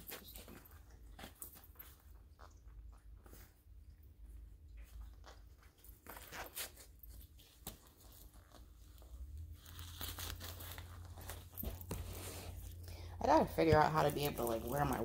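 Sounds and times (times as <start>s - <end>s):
glove rustling: 5.1s - 15.0s
hook-and-loop strap ripping: 9.6s - 12.1s.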